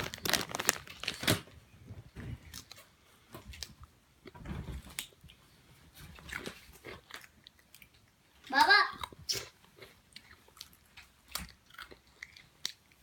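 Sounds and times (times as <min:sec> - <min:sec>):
cracker crunching: 0:00.0 - 0:01.6, 0:08.9 - 0:13.0.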